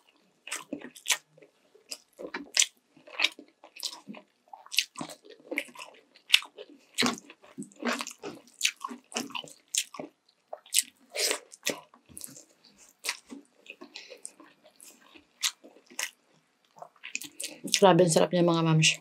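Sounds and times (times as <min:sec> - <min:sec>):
biting and chewing: 0:00.0 - 0:17.8.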